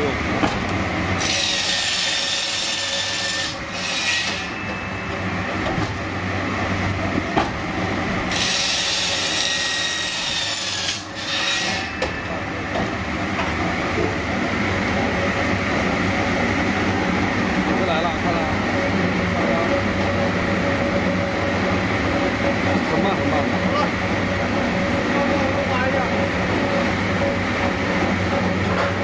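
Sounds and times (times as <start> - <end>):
motor and conveyor hum: 0.0 - 29.0
saw cutting through log: 1.1 - 4.6, 8.3 - 12.6.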